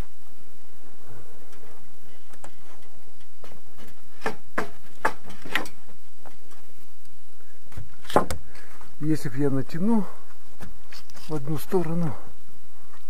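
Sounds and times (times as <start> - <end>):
wooden knocks on scaffolding planks: 4.2 - 5.7.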